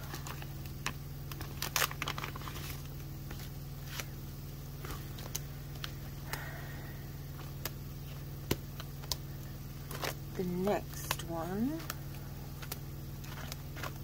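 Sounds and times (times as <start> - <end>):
plastic pockets rustling and crinkling: 0.0 - 4.2, 7.3 - 14.0
steady low hum: 0.0 - 14.0.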